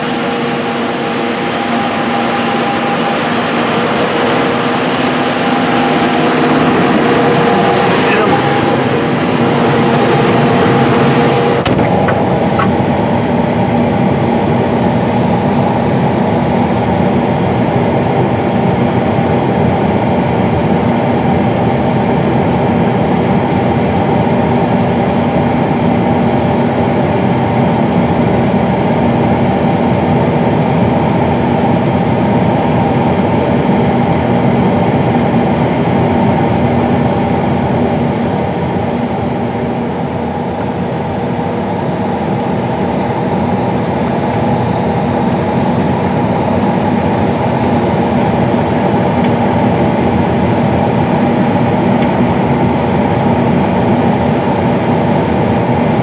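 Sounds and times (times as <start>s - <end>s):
steady humming tones: 0.0s - 19.0s
combine harvester machinery drone: 0.0s - 56.0s.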